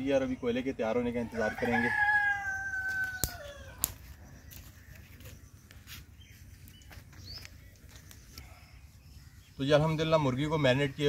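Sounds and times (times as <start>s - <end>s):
bird chirp: 0.0s - 11.0s
rooster crowing: 1.2s - 3.9s
twig fire crackling: 1.9s - 8.5s.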